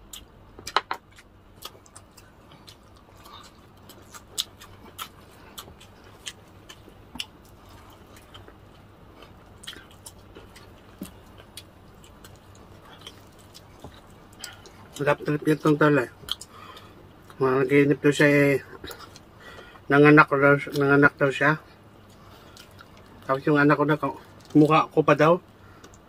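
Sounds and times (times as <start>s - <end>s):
chewing and mouth sounds: 0.0s - 17.5s, 18.6s - 19.9s, 21.7s - 23.4s
crispy food crackling: 0.0s - 26.0s.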